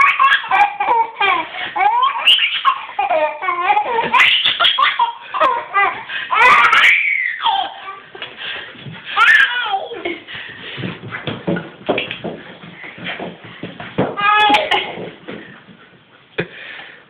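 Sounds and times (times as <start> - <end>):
baby giggling: 0.0 - 8.0, 9.2 - 10.3, 14.2 - 15.2.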